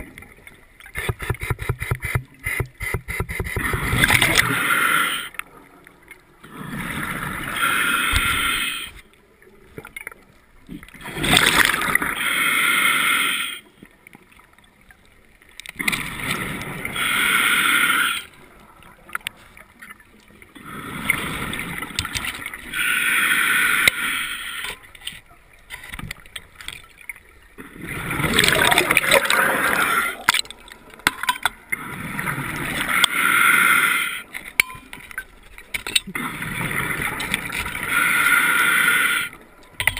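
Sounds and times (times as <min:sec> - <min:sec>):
regulator breath hissing: 0:07.6 - 0:09.0, 0:17.0 - 0:18.3
bubbling exhale underwater: 0:27.6 - 0:30.4.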